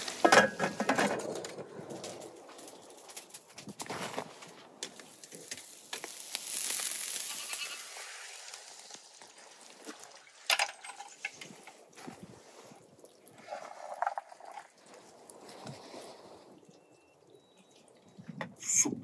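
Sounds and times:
kebabs sizzling over charcoal: 4.8s - 10.4s.

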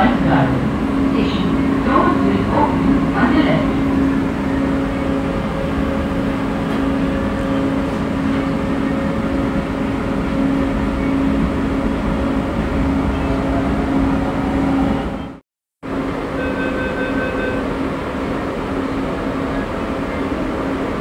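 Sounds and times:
train rumble with hum tone: 0.0s - 21.0s.

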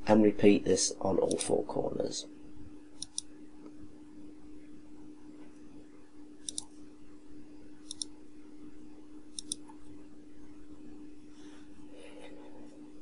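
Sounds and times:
low electrical hum: 0.0s - 13.0s
computer mouse clicking: 3.0s - 3.3s, 6.4s - 6.7s, 7.8s - 8.1s, 9.3s - 9.8s.

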